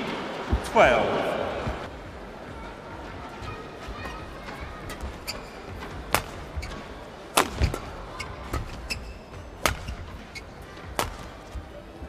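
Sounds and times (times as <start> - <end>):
crowd hum: 0.0 - 12.0
racket hitting shuttlecock: 4.8 - 11.4.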